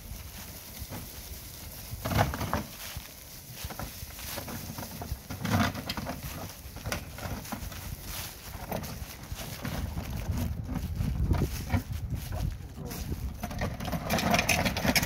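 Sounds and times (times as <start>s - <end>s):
metal cart frame clacking and rattling: 2.0s - 2.8s, 3.7s - 7.8s, 13.2s - 15.0s.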